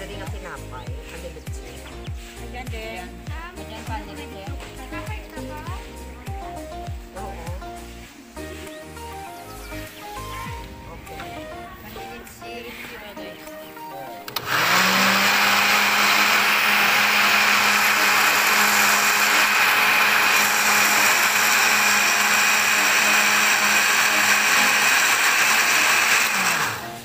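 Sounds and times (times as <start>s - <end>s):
blender grinding peanuts: 14.3s - 27.0s.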